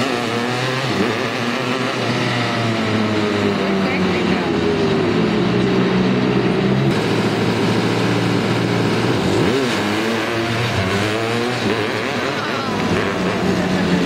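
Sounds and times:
small engine revving: 0.0s - 14.0s.

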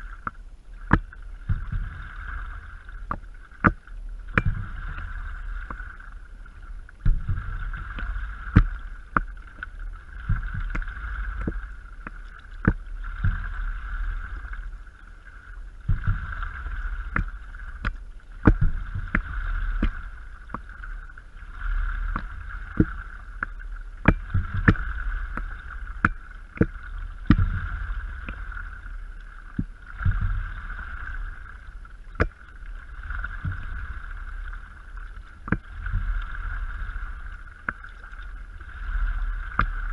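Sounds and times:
low rumble: 0.0s - 39.9s
paddle splashes and drips: 0.0s - 39.9s.

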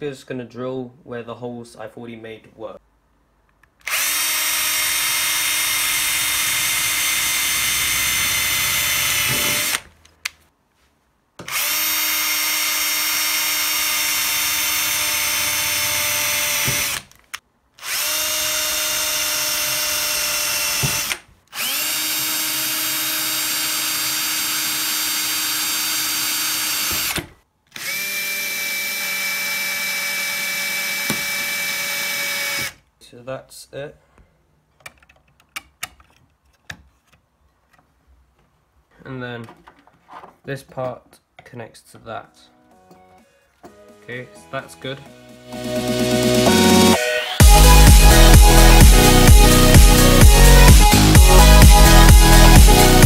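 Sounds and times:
power drill boring through metal: 3.9s - 9.8s, 11.5s - 17.1s, 17.8s - 32.8s.

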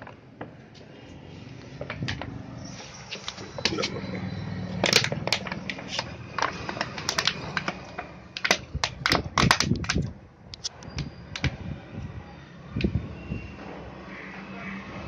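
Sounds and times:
plastic bottle crackling and clicking: 4.8s - 10.7s.

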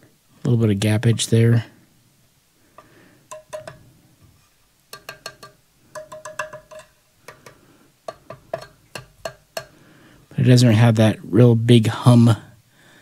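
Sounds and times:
metallic clicks and taps: 2.8s - 3.9s, 4.9s - 9.8s.

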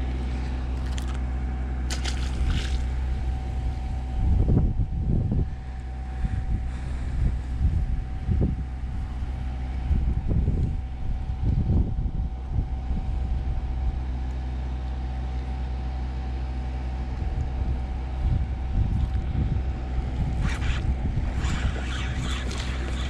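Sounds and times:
faint steady whine: 0.0s - 23.0s
low engine-like hum: 0.0s - 23.0s
wind gusting on microphone: 2.4s - 13.3s, 17.2s - 23.0s.

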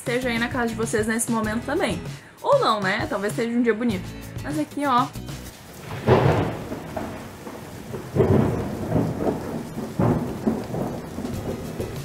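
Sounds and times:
rain falling: 2.8s - 12.0s
rolling thunder: 5.7s - 12.0s.

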